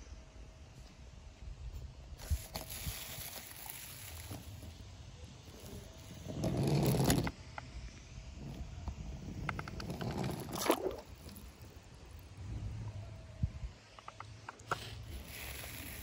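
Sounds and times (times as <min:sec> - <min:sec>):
toy truck scraping on wood: 0:02.2 - 0:04.8, 0:05.4 - 0:07.4, 0:08.4 - 0:11.8, 0:14.6 - 0:16.0
rubber tyres rolling across wood: 0:02.2 - 0:07.7, 0:08.3 - 0:13.0, 0:14.0 - 0:16.0.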